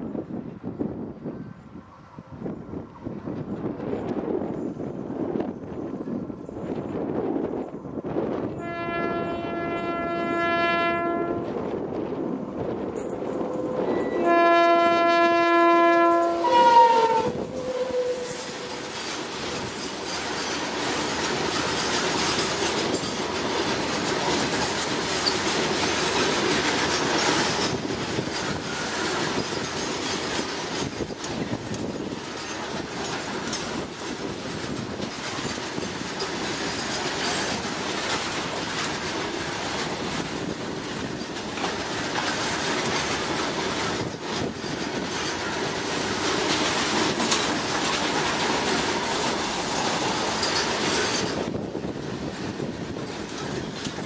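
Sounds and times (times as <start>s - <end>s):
locomotive air horn: 8.6s - 11.6s, 13.6s - 18.9s
wagon wheels rumbling and clacking: 18.4s - 54.0s.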